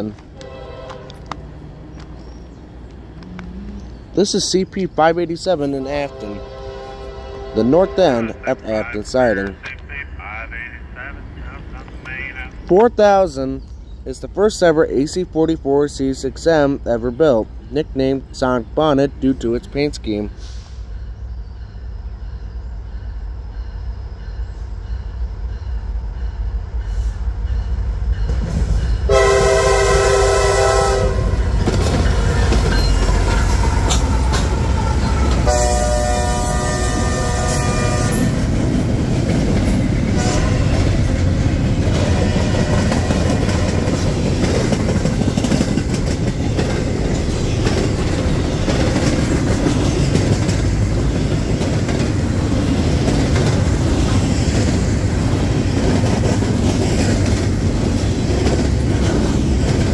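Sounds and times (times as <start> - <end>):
diesel locomotive rumble: 0.0 - 59.9
locomotive air horn blasts: 0.4 - 1.2, 6.1 - 8.4, 29.1 - 31.5, 34.8 - 38.4, 40.2 - 40.7
train wheels clattering on rails: 31.3 - 35.6, 38.2 - 59.9.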